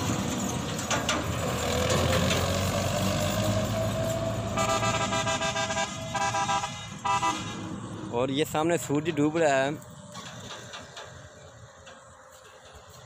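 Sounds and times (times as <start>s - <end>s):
tractor engine running: 0.0s - 13.0s
vehicle horn blasts: 4.5s - 7.7s.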